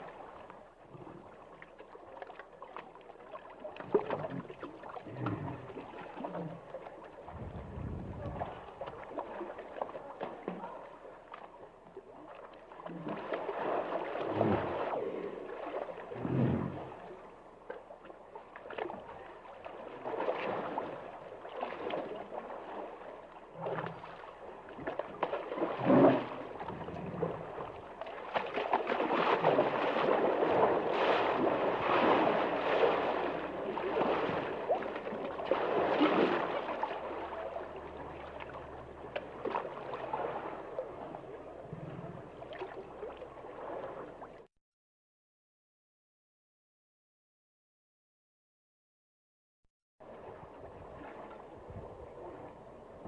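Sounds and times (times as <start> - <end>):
water gurgling and sloshing: 0.0 - 44.5, 50.0 - 53.0
hippopotamus grunts: 5.0 - 6.6.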